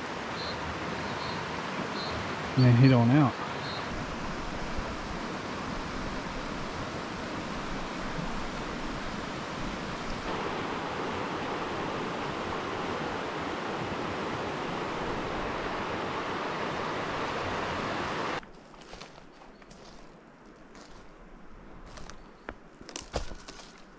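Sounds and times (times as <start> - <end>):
river rushing over stones: 0.0 - 18.4.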